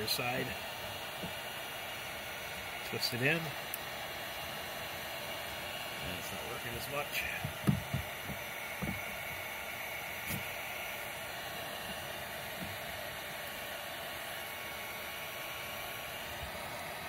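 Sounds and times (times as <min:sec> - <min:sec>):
heat gun blowing: 0:00.0 - 0:17.0.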